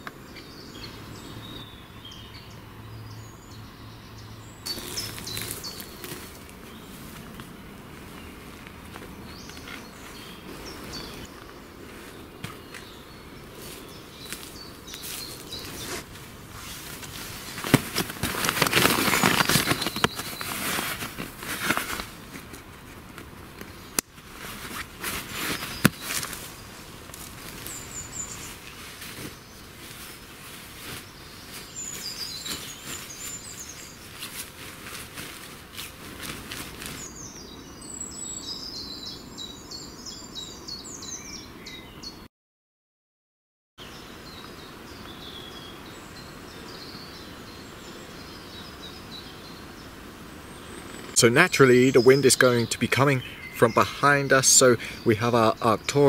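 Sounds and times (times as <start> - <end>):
birds chirping: 0.0 - 42.3, 43.8 - 56.0
rustling camping gear: 4.6 - 38.6
footsteps in dry leaves: 4.7 - 23.0, 24.1 - 37.2.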